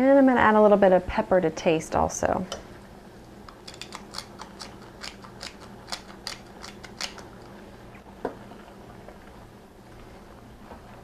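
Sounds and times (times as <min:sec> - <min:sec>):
pepper mill grinding clicks: 0:03.5 - 0:07.3.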